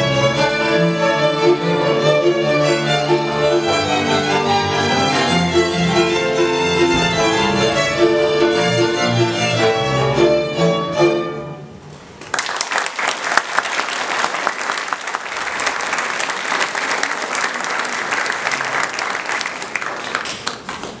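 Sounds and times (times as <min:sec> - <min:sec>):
audience applauding: 0:12.2 - 0:21.0.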